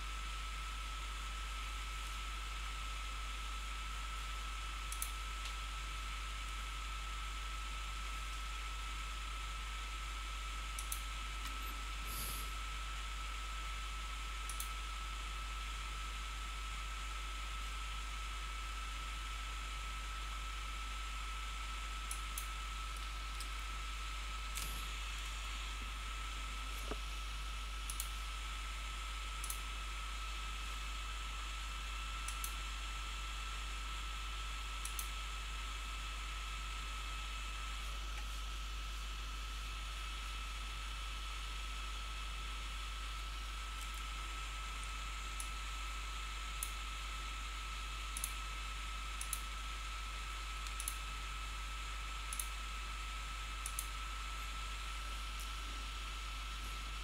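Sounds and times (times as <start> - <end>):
computer mouse clicking: 4.9 - 5.6, 10.7 - 12.4, 14.4 - 14.8, 22.1 - 23.6, 27.8 - 28.2, 29.4 - 29.6, 32.2 - 32.6, 34.8 - 35.2, 43.2 - 44.1, 44.8 - 45.6, 46.6 - 46.8, 48.1 - 48.4, 49.2 - 49.5, 50.6 - 51.1, 52.3 - 52.6, 53.6 - 54.0
faint high whine: 10.8 - 12.9.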